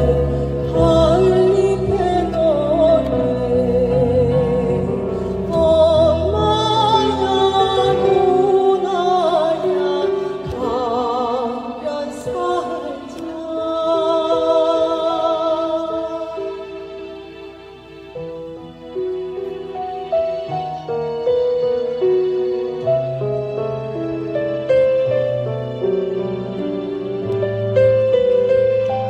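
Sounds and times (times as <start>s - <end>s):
two singers with wide vibrato: 0.0s - 17.9s.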